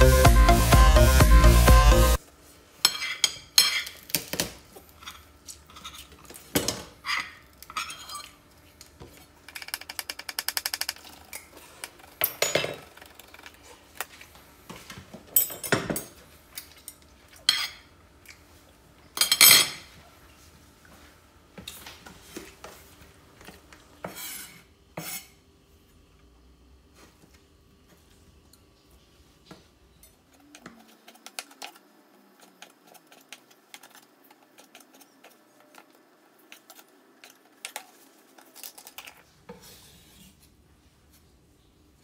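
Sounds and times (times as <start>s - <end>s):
background music: 0.0s - 2.2s
kitchenware clinking: 2.8s - 8.4s, 12.1s - 13.4s, 15.3s - 17.9s, 19.1s - 20.0s.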